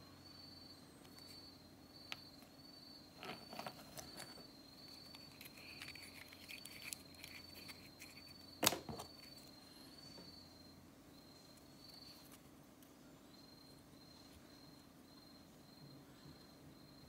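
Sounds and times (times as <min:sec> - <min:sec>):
high cricket-like trill: 0:00.0 - 0:12.4.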